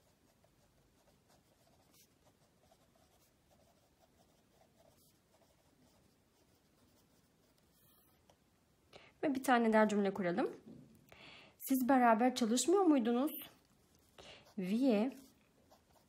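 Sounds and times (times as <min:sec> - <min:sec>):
pen scratching on paper: 0:00.0 - 0:08.2, 0:13.8 - 0:16.0.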